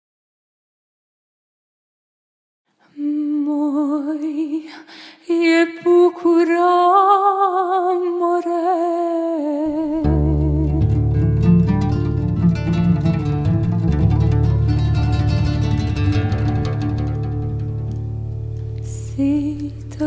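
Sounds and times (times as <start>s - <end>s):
woman singing: 2.9s - 11.3s, 18.8s - 20.0s
plucked strings: 9.7s - 20.0s.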